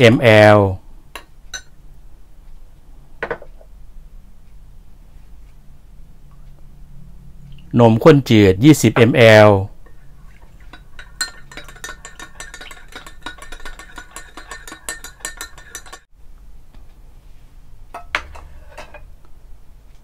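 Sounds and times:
metal spoon clinking against glass: 0:01.2 - 0:01.8, 0:10.7 - 0:16.1.

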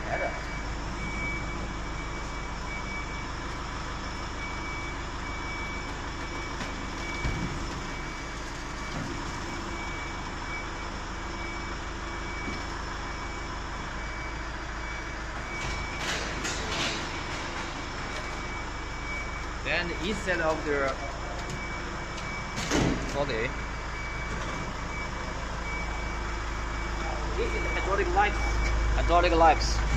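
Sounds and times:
pulsing warning beeper: 0:00.0 - 0:29.9.

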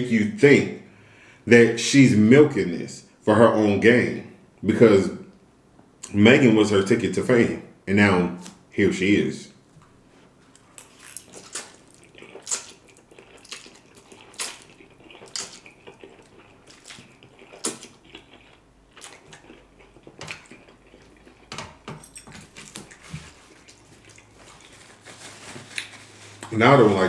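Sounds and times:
man slurping and chewing noodles: 0:10.6 - 0:25.0.

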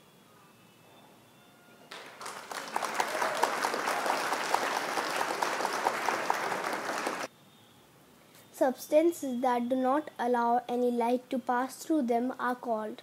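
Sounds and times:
crowd clapping: 0:01.9 - 0:07.3.

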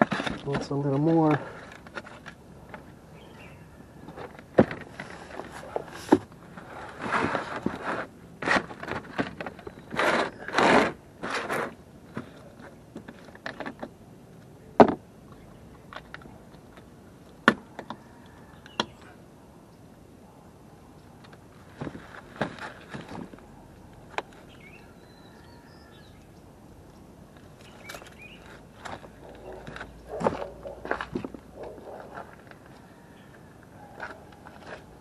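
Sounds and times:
rustling and scraping: 0:00.0 - 0:15.0, 0:21.0 - 0:25.0, 0:27.3 - 0:35.0.

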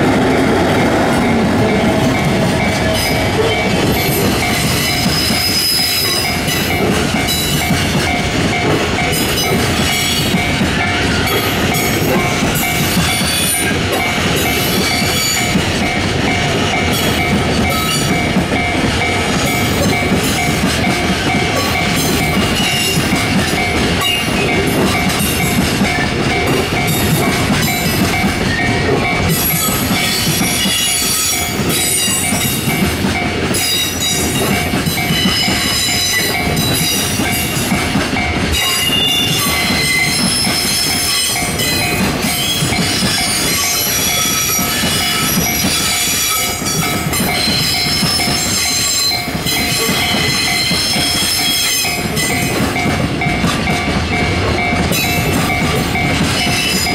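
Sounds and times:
train wheels clattering on rails: 0:00.0 - 0:56.9.

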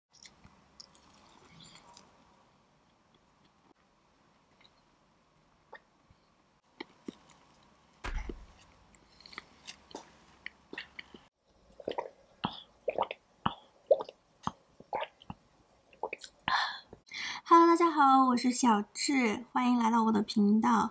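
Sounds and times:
sharp knock with dull thud: 0:08.0 - 0:08.5.

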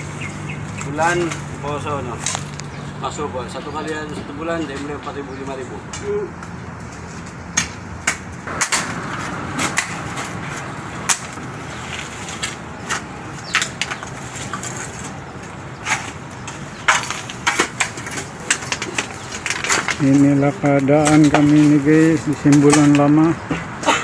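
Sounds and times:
shovels digging into soil: 0:07.5 - 0:15.2.

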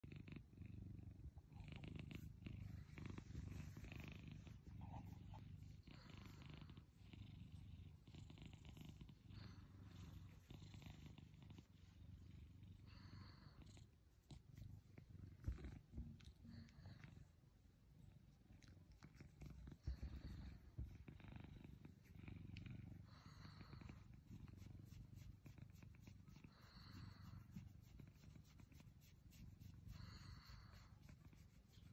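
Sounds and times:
cat purring: 0:00.0 - 0:31.9.

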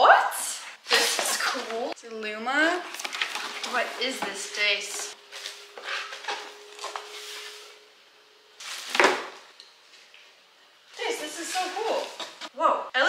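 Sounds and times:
loud packaging rustle or scrape: 0:00.8 - 0:01.8, 0:02.9 - 0:07.8, 0:08.6 - 0:09.4, 0:11.2 - 0:12.5.

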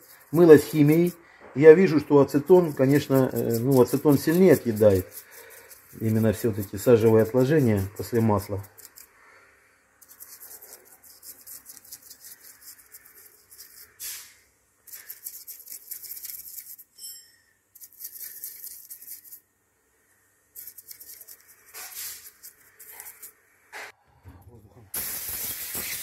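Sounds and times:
brush scrubbing metal: 0:00.0 - 0:09.2, 0:10.0 - 0:14.3, 0:14.9 - 0:16.9, 0:17.8 - 0:19.4, 0:20.5 - 0:23.4.

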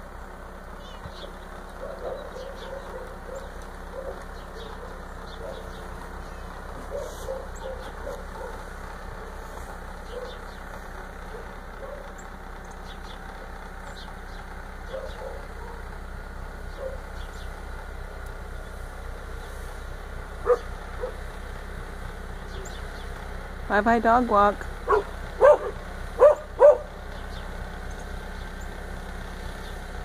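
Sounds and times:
engine humming: 0:00.0 - 0:30.0
dog barking: 0:01.8 - 0:05.7, 0:06.8 - 0:09.4, 0:10.1 - 0:10.4, 0:11.3 - 0:12.1, 0:14.9 - 0:15.8, 0:16.8 - 0:17.0, 0:20.4 - 0:21.2, 0:24.9 - 0:26.9.

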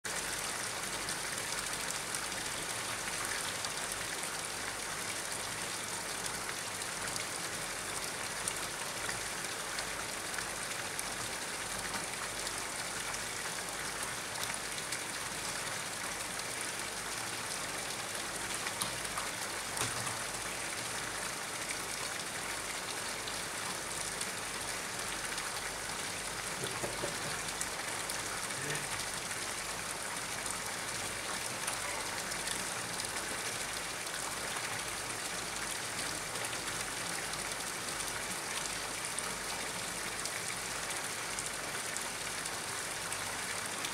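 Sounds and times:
water falling onto pond: 0:00.1 - 0:43.9.

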